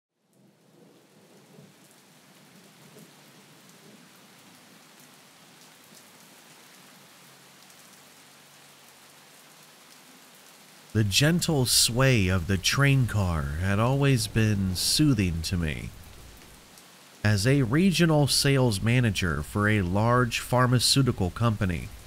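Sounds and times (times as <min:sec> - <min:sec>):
soft rain patter: 0:00.2 - 0:22.0.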